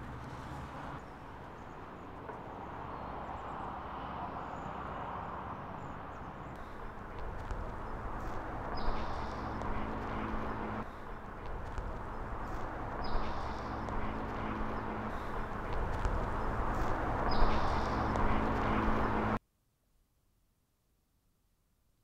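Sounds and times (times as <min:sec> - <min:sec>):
bird chirp: 0:05.5 - 0:19.3
low rumble: 0:06.5 - 0:19.4.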